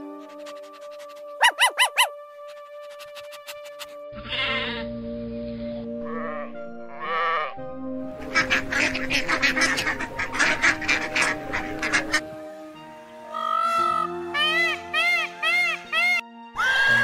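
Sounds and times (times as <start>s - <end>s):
background music: 0.0s - 17.0s
ducks quacking: 2.9s - 4.9s, 6.0s - 12.4s
sheep bleating: 4.2s - 4.9s, 6.0s - 7.5s.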